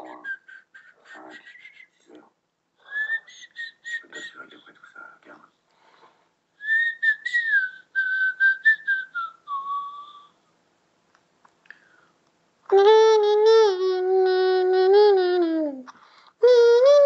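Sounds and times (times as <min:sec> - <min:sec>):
person whistling a tune: 0:06.6 - 0:10.4.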